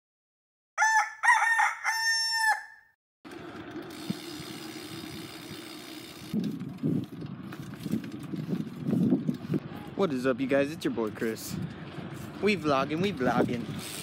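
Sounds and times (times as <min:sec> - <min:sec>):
rooster crowing: 0:00.8 - 0:02.9.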